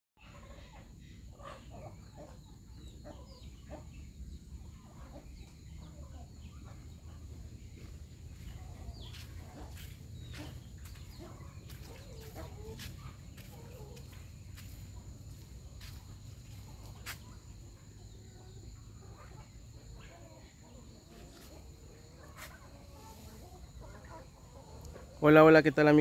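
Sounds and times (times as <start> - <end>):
chickens clucking: 0.2 - 26.0.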